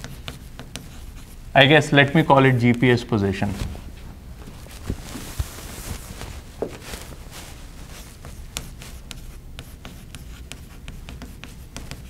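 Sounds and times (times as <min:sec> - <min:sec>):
chalk tapping and scratching: 0:00.0 - 0:02.9, 0:06.6 - 0:12.0
blackboard being wiped: 0:03.4 - 0:12.0.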